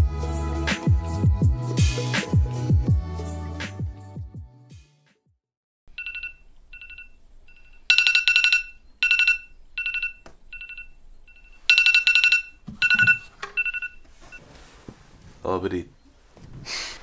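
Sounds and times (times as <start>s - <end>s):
phone alarm beeping: 6.0s - 14.4s.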